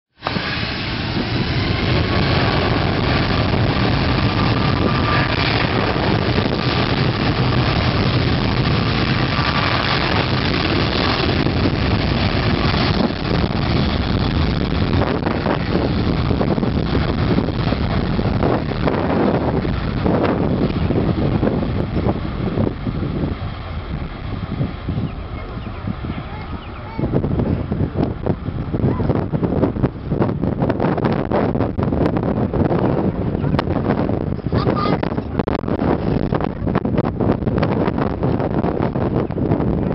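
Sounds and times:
jet engines at takeoff thrust: 0.1 - 39.9
faint engine whine: 0.2 - 30.2.

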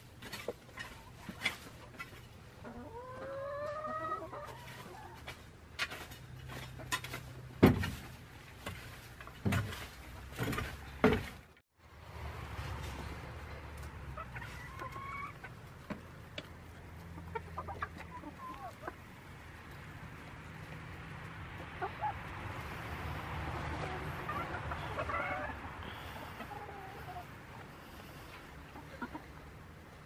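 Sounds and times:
hens clucking: 0.2 - 7.5, 13.4 - 30.0.

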